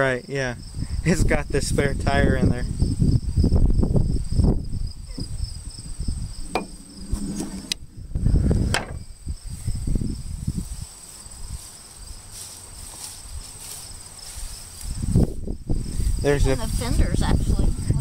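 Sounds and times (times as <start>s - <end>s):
insects chirring: 0.0s - 18.0s
microphone handling rumble: 3.6s - 10.6s.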